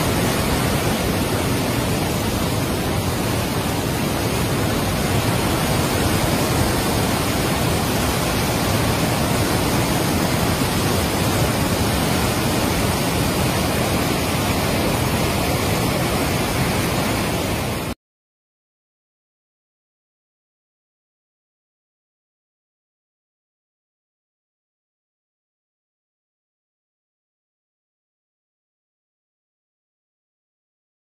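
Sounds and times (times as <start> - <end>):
floodwater torrent rushing: 0.0 - 18.0.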